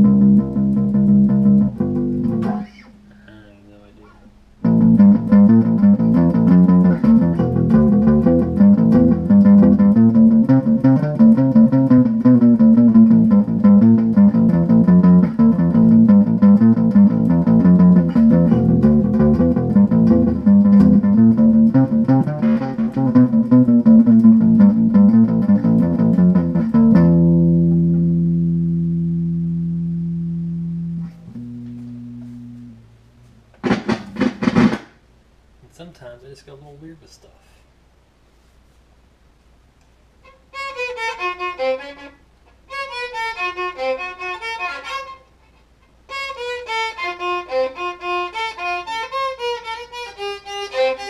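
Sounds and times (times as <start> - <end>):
electric guitar riff: 0.0 - 3.4, 4.6 - 34.8, 40.2 - 45.3.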